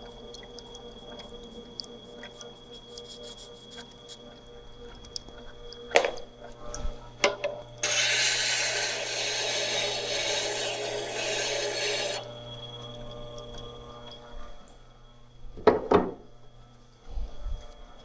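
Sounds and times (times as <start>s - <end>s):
motor hum: 0.0s - 18.0s
steel tool grinding on stone: 7.8s - 12.3s.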